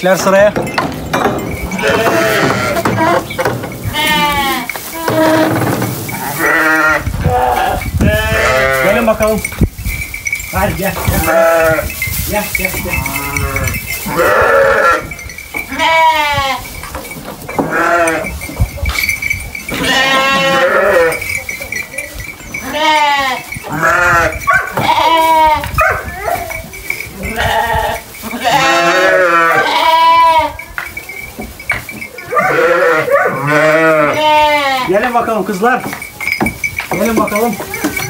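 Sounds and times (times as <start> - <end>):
sheep bleating: 1.8 - 3.2, 3.8 - 5.6, 6.2 - 9.1, 13.0 - 15.1, 17.7 - 18.3, 19.8 - 21.2, 22.6 - 25.7, 27.3 - 30.6, 32.3 - 35.0.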